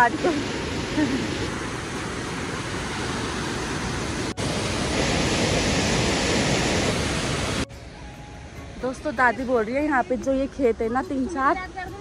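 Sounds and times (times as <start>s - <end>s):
stream rushing over boulders: 0.0s - 7.7s.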